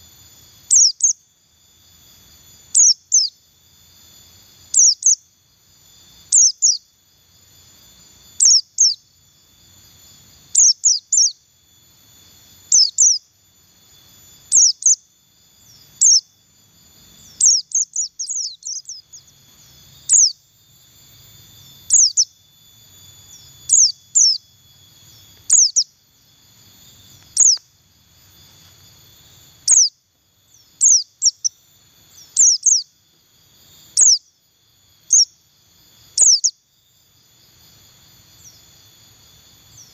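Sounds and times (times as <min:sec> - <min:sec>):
bird chirping call: 0:00.7 - 0:01.2, 0:02.7 - 0:03.4, 0:04.7 - 0:05.3, 0:06.2 - 0:07.0, 0:08.3 - 0:09.2, 0:10.5 - 0:11.5, 0:12.6 - 0:13.4, 0:14.4 - 0:16.4, 0:17.0 - 0:20.6, 0:21.2 - 0:22.4, 0:23.2 - 0:26.0, 0:26.8 - 0:28.8, 0:29.6 - 0:33.0, 0:33.8 - 0:34.3, 0:35.0 - 0:35.4, 0:36.2 - 0:36.6.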